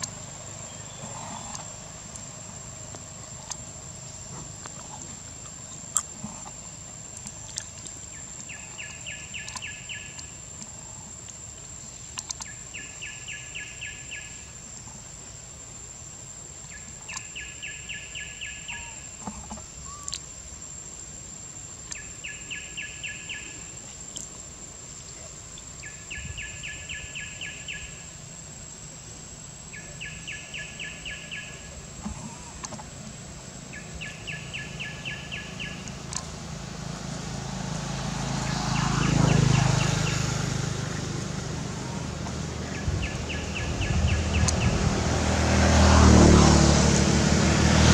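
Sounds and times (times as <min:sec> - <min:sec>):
faint sharp clicks: 0:07.2 - 0:12.6, 0:19.2 - 0:20.3, 0:21.8 - 0:22.1, 0:35.8 - 0:36.3.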